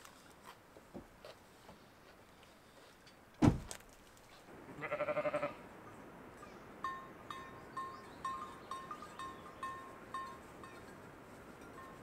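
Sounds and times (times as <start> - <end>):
heavy thump: 3.4 - 3.8
wavering animal bleat: 4.7 - 5.6.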